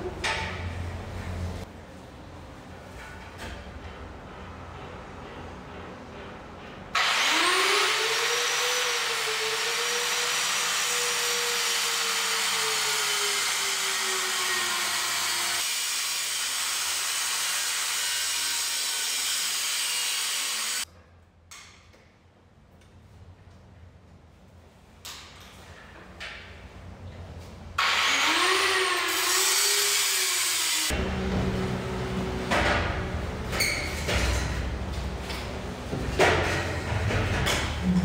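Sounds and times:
angle grinder cutting metal pipe: 0:07.0 - 0:20.8, 0:27.8 - 0:31.0.

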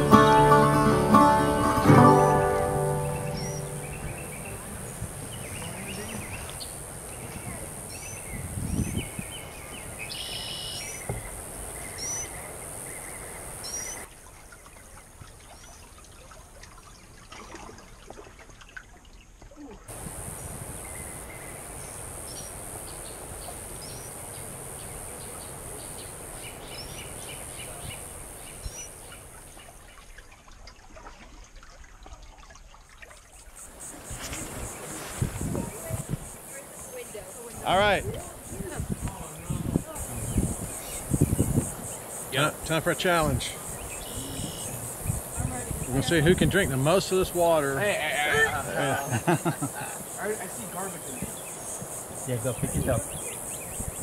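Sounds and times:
steady high hiss: 0:00.0 - 0:14.1, 0:19.9 - 0:29.5, 0:33.6 - 0:54.0
bird chirping: 0:02.0 - 0:14.1, 0:38.3 - 0:46.2.

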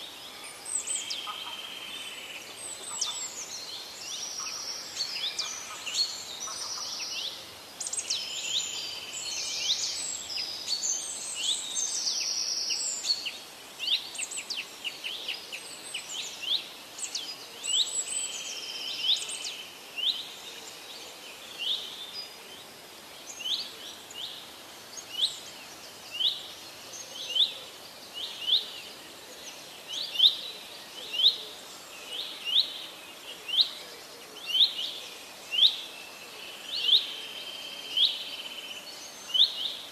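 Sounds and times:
birds chirping and trilling: 0:00.0 - 0:20.3.

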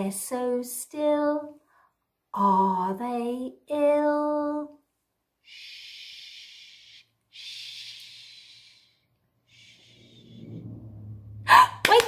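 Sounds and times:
woman shushing: 0:11.5 - 0:11.9.

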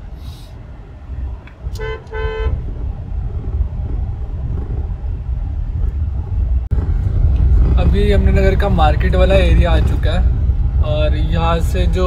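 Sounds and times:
car driving rumble: 0:00.0 - 0:12.0
car horn toots: 0:01.6 - 0:02.9.

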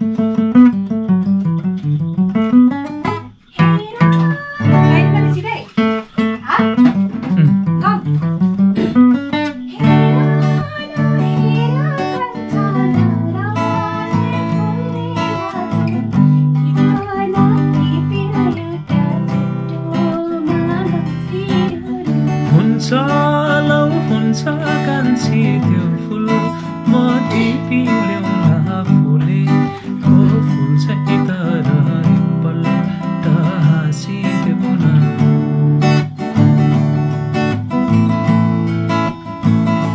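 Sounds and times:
acoustic guitar strumming: 0:00.0 - 0:39.9
man singing: 0:22.4 - 0:35.5.

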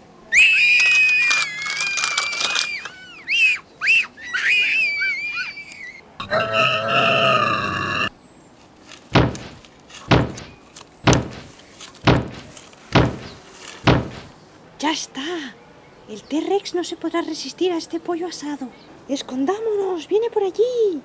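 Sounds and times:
dinosaur roar: 0:06.2 - 0:08.1
stomping footsteps: 0:08.9 - 0:14.4.

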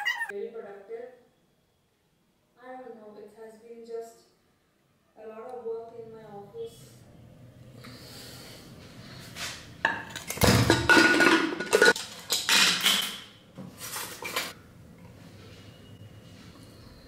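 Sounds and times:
metal pot and spoon clanking: 0:09.9 - 0:13.2.

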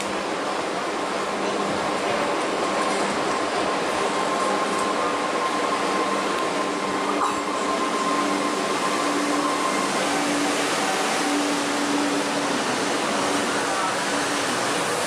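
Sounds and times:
electric train braking: 0:04.0 - 0:15.0.

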